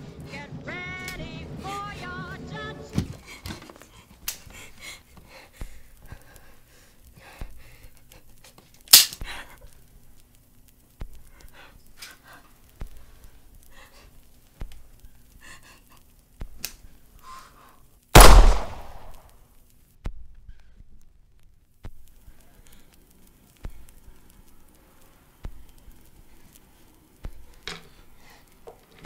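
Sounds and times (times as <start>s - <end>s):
woman panting and sobbing: 1.5s - 8.3s, 15.1s - 16.1s
loud sharp sound: 18.2s - 19.2s.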